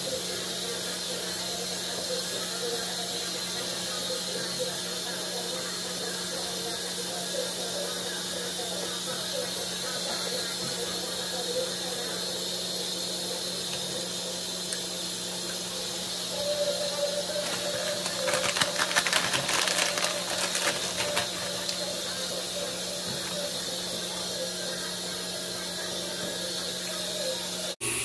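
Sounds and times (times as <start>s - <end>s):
background hiss and hum: 0.0s - 28.0s
plastic packaging crinkling: 16.7s - 22.2s.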